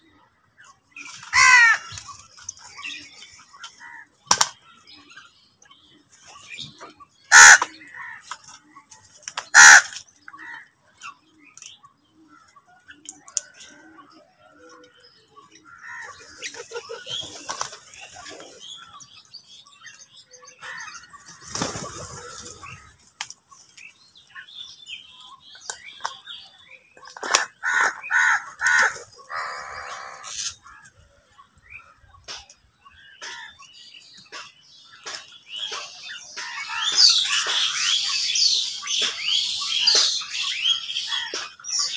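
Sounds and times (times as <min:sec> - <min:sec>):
crows cawing: 0:01.3 - 0:01.9, 0:07.3 - 0:08.3, 0:09.5 - 0:10.7, 0:27.5 - 0:30.5
wings flapping: 0:21.3 - 0:22.7.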